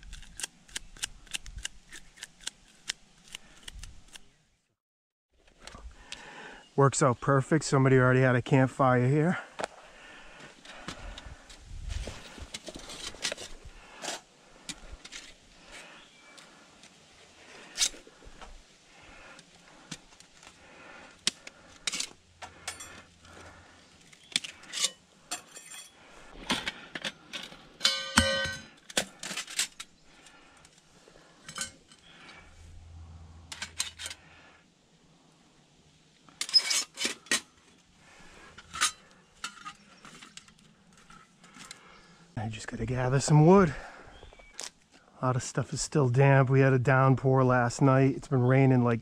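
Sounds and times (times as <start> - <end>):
metal panels clinking and rattling: 26.5 - 29.8.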